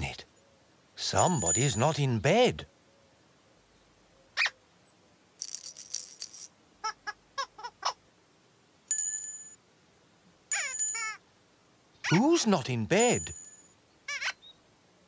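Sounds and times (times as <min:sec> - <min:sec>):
bell-like tinkles: 0:01.2 - 0:02.0, 0:08.9 - 0:09.6, 0:10.5 - 0:11.2, 0:13.0 - 0:13.8.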